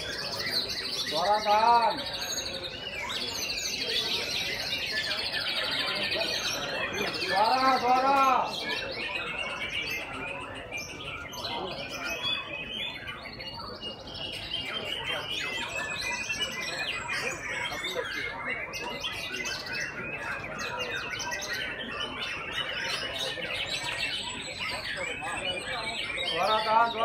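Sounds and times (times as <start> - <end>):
birds whistling and chirping: 0.0 - 27.0.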